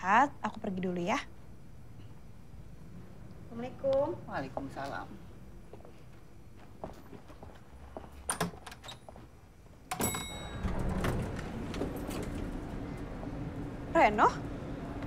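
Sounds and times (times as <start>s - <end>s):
footsteps on hard floor: 5.7s - 8.2s
steady hum: 9.4s - 15.0s
door shutting: 9.9s - 13.7s
bell-like chime: 10.0s - 10.9s.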